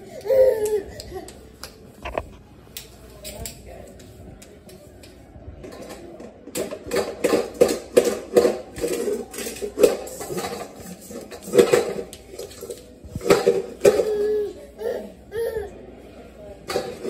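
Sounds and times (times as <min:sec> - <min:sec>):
metal bowl clattering on tile floor: 0:05.6 - 0:14.3, 0:16.7 - 0:17.0.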